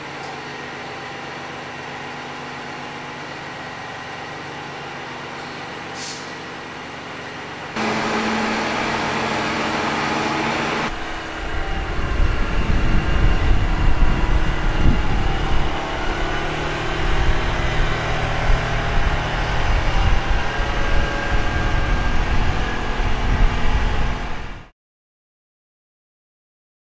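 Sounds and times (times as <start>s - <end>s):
tractor diesel engine running: 2.7s - 24.7s
wind rumble on microphone: 10.9s - 24.7s.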